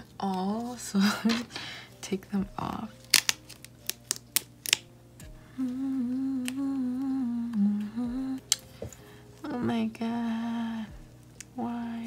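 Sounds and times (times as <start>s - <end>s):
cards clicking: 3.0s - 4.9s, 8.4s - 9.0s
woman singing long note: 5.5s - 8.6s, 9.4s - 12.0s.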